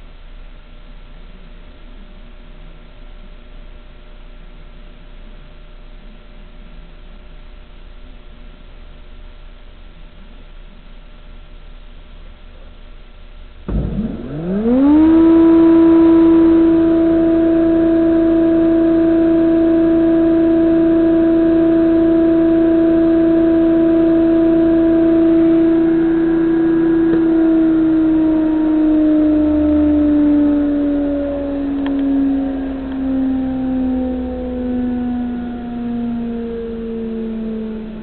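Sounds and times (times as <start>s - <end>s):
jointer motor hum: 13.7s - 38.0s.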